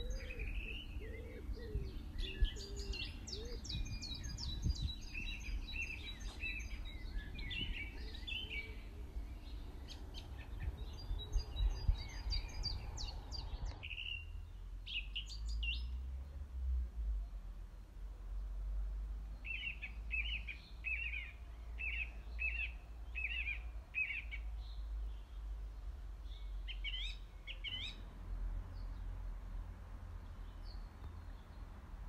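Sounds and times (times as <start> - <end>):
birds singing and chirping: 0.0 - 16.5, 19.3 - 28.1.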